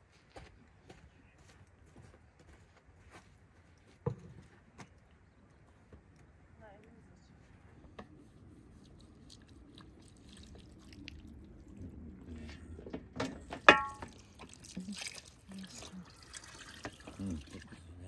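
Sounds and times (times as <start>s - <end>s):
water splashing on meat: 8.8s - 12.0s, 14.0s - 17.8s.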